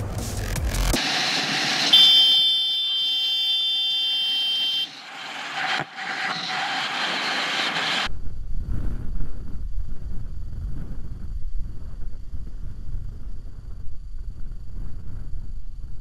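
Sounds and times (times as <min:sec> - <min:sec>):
freeway traffic: 0:00.0 - 0:08.1
vehicle horn blast: 0:01.7 - 0:05.2
wind rush: 0:05.1 - 0:16.0.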